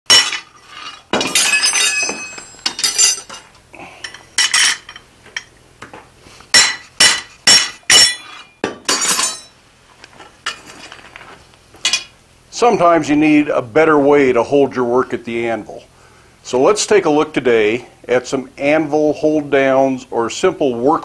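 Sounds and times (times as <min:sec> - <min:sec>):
hammer striking metal on anvil: 0:06.5 - 0:09.5.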